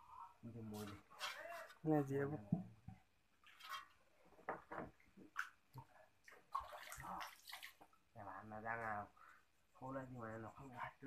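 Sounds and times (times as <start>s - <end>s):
water splashing in a pool: 3.4s - 4.2s, 5.0s - 8.1s
water dripping: 4.9s - 8.2s.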